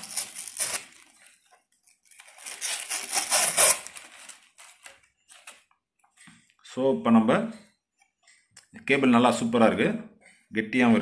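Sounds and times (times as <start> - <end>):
plastic wrapping crinkling: 0.0 - 5.8.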